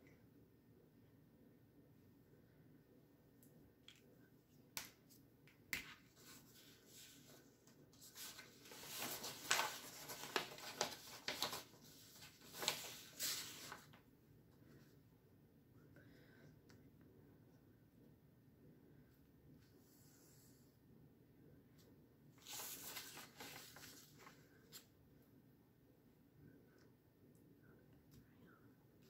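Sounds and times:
paper rustling and sliding: 6.0s - 14.0s, 22.4s - 24.9s.

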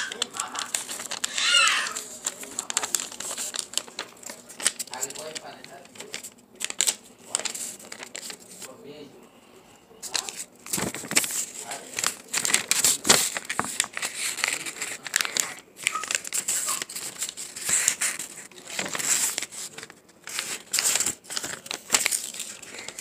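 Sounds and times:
paper crinkling and rustling: 0.0s - 8.8s, 10.0s - 23.0s.

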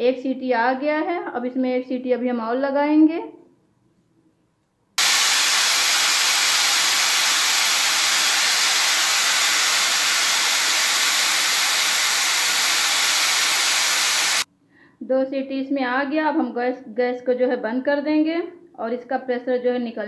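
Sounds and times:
pressure cooker steam hissing: 5.0s - 14.5s.

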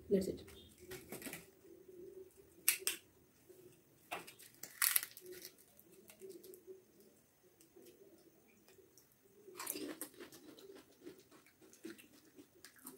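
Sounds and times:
fried shell cracking: 2.6s - 3.0s, 4.1s - 6.6s.

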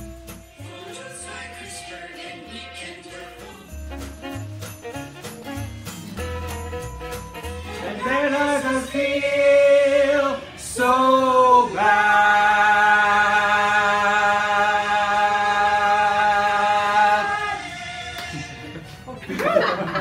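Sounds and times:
group of people singing: 7.7s - 18.9s.

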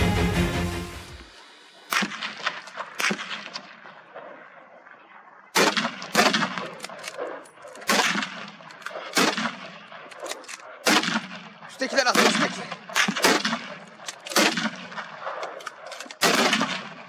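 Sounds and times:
rifle shots echoing: 1.8s - 17.0s.

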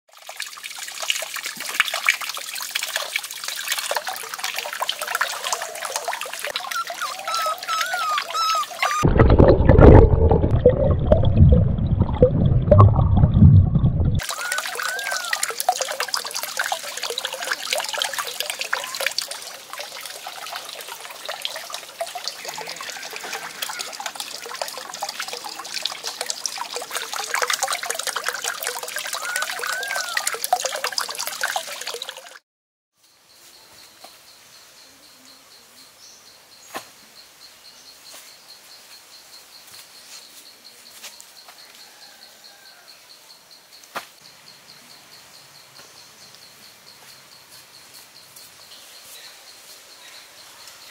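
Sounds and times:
water pouring and splashing: 0.1s - 32.4s
water trickling: 0.1s - 32.4s.

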